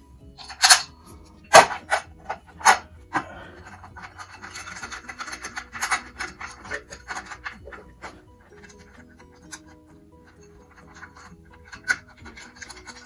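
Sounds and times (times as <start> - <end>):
metal scraping and rubbing: 0.3 - 13.0
sharp metal clanks: 0.4 - 2.9.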